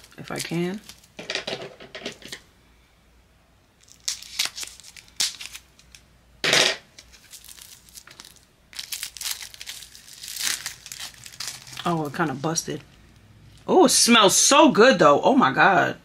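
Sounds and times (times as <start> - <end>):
packaging crinkling: 0.0 - 1.2, 3.8 - 6.0, 6.9 - 12.9
packaging ripping: 0.0 - 1.2, 3.8 - 6.0, 6.9 - 12.3.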